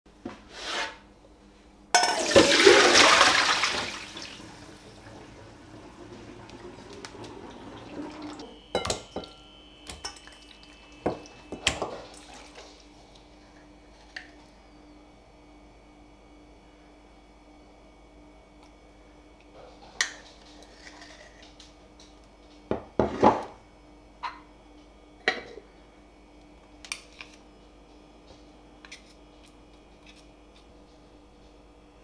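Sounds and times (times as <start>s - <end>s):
tap water gushing into sink: 2.2s - 8.5s.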